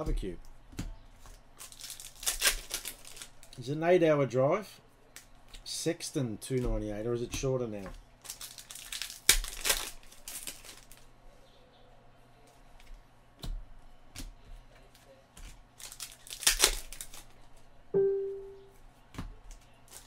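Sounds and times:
foil wrappers crinkling and tearing: 1.2 - 3.6, 8.2 - 11.1, 15.0 - 17.6, 19.5 - 20.0
brief hum-like tone: 18.0 - 18.8.

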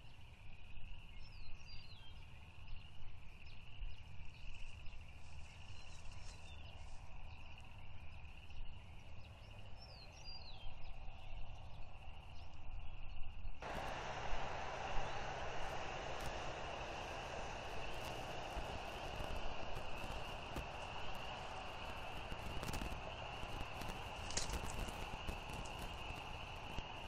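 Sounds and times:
small birds chirping: 0.9 - 27.0
loud rush of noise: 13.6 - 27.0
low rumble: 13.6 - 27.0.

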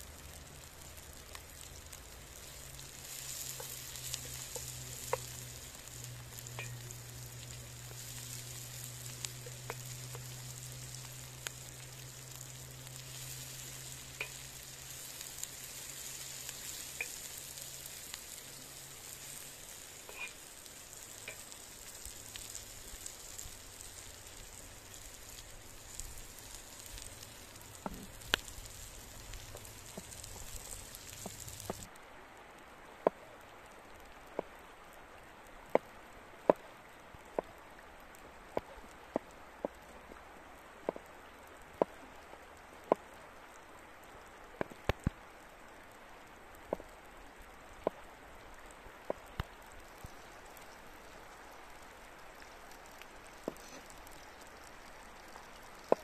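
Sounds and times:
vegetables sizzling in oil: 0.0 - 31.9, 49.1 - 56.0.

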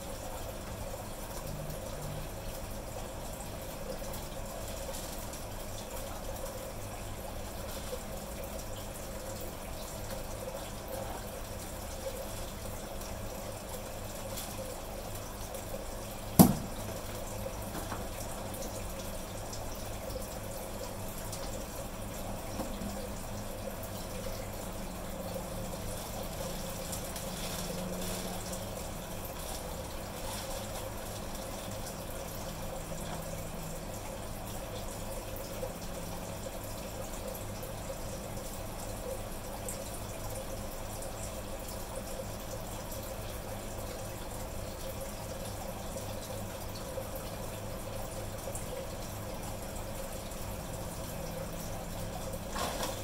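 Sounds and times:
aquarium filter running water: 0.0 - 53.0
sharp knock: 16.4 - 16.7.

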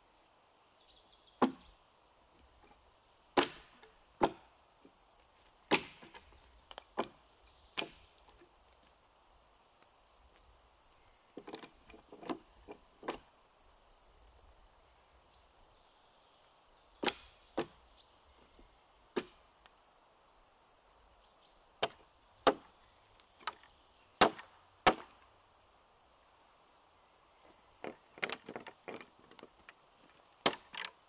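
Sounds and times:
hatchet chopping wood: 1.4 - 1.6, 3.4 - 4.5, 5.7 - 7.2, 7.8 - 8.0, 17.0 - 17.8, 19.2 - 19.4, 21.8 - 22.7, 24.2 - 25.2, 30.4 - 30.9.

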